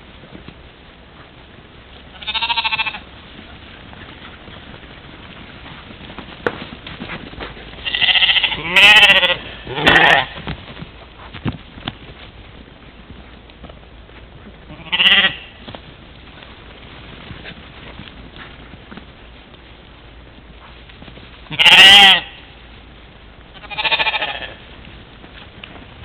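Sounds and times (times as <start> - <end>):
sheep bleating: 2.1 - 3.0, 7.8 - 10.4, 14.7 - 15.6, 21.5 - 22.5, 23.6 - 24.6.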